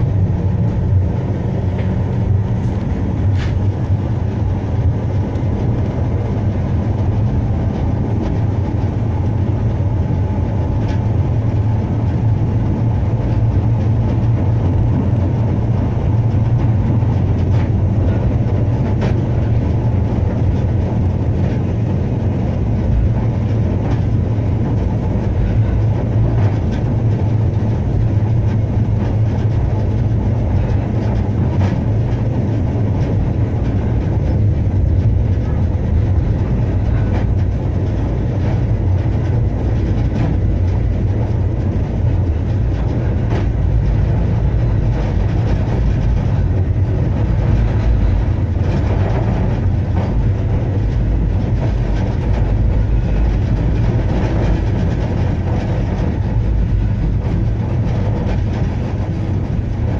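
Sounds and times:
tram rumbling on rails: 0.0 - 59.9
faint rail clicks: 1.6 - 6.0, 6.6 - 59.9.

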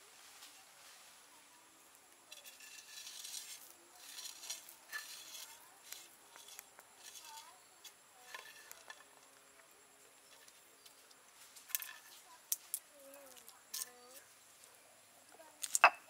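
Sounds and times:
salt crystals pattering on stone: 15.6 - 15.9.

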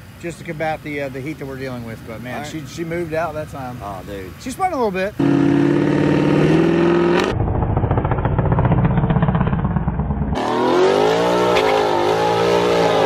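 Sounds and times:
car engine revving hard: 5.2 - 7.4, 10.3 - 13.0.

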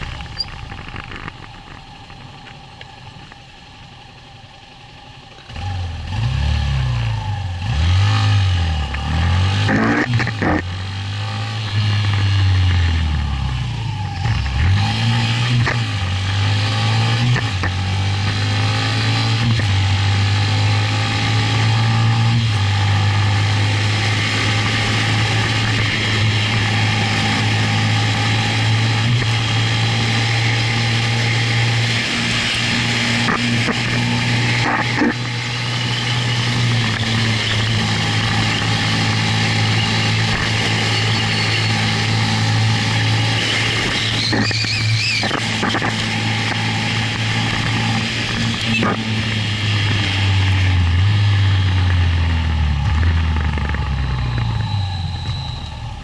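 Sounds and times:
motorcycle engine running: 0.0 - 7.6, 9.7 - 56.0
high wavering squeal: 39.4 - 45.4, 54.1 - 56.0.

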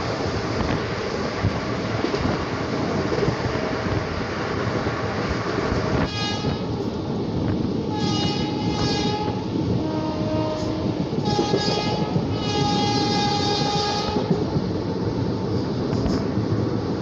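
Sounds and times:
train wheels rumbling on track: 0.0 - 17.0
train horn blasts: 6.0 - 6.7, 7.9 - 14.3.

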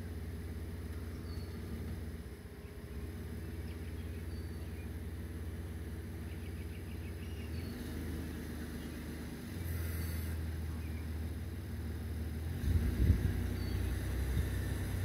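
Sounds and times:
low motor hum: 0.0 - 15.0.

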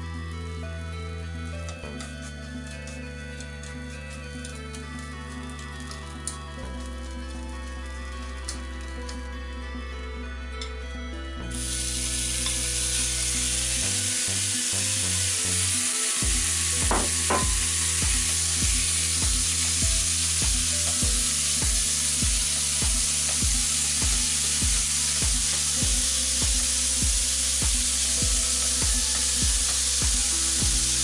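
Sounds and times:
meat sizzling in frying pan: 11.5 - 31.0.

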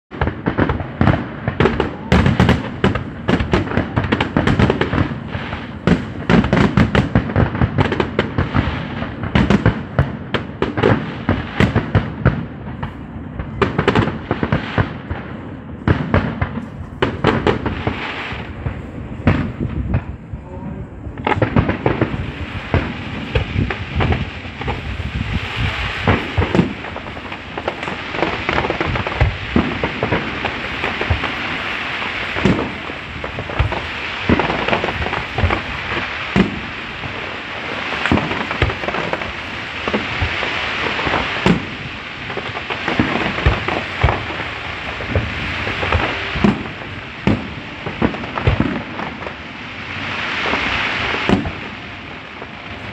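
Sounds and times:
firework crackling hiss: 0.2 - 52.9
firework shells bursting: 15.8 - 20.2, 21.2 - 49.4.

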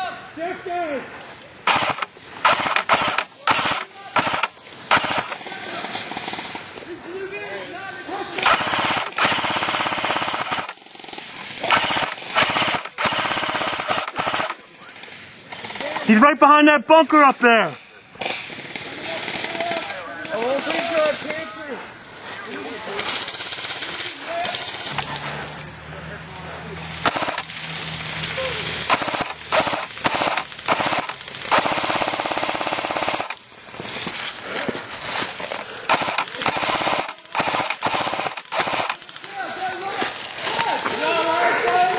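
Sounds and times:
airsoft machine gun firing: 1.6 - 6.7, 8.4 - 14.6, 23.0 - 25.0, 27.0 - 27.7, 28.5 - 33.4, 35.8 - 39.4.

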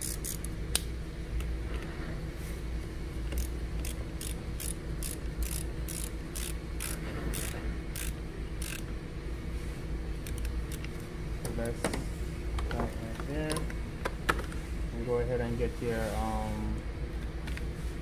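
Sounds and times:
ratchet wrench clicking: 0.0 - 0.5, 3.3 - 8.9.

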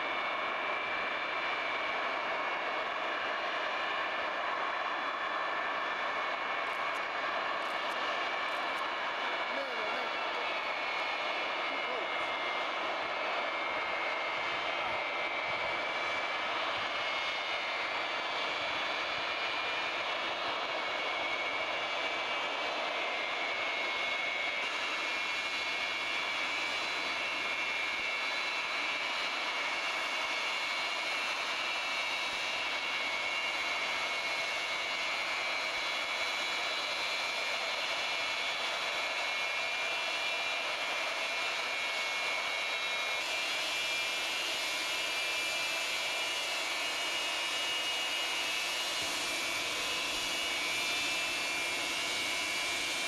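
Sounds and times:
jet aircraft taxiing: 0.0 - 53.0.

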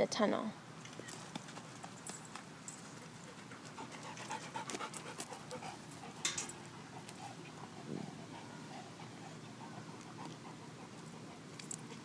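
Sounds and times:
rustle: 0.5 - 12.0
dog panting: 2.9 - 12.0.

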